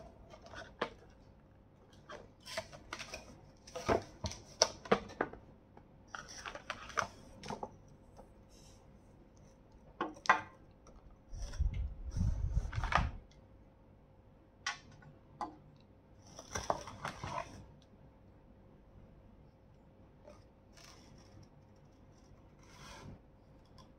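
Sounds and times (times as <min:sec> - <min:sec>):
cardboard and plastic packaging rustling: 0:01.9 - 0:05.4, 0:06.1 - 0:07.8, 0:16.3 - 0:17.6.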